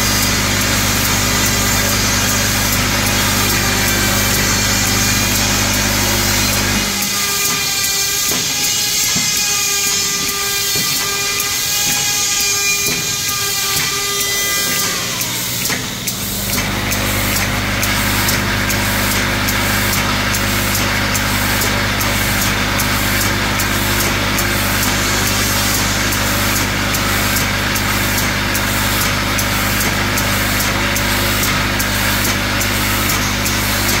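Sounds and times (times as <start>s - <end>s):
vibratory bowl feeder hum: 0.0s - 7.2s, 14.6s - 34.0s.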